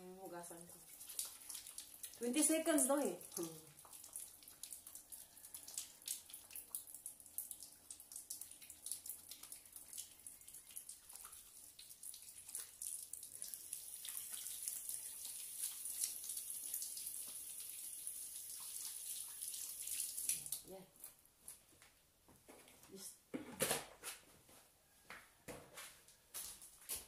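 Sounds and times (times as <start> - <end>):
tap running steadily: 0.5 - 21.2.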